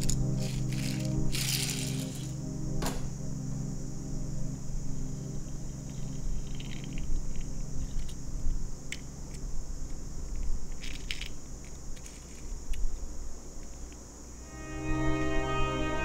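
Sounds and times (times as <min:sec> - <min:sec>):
low steady rumble and hiss: 0:00.0 - 0:14.5
plastic toy cars clicking: 0:10.4 - 0:14.0.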